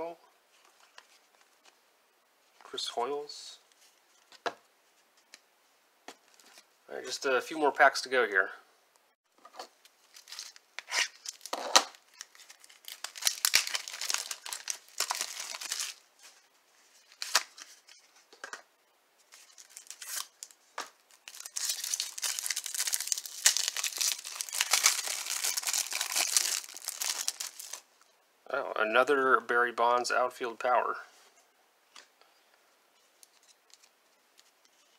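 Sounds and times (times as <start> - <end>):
plastic wrapper crinkling and tearing: 10.0 - 16.1, 19.3 - 27.8.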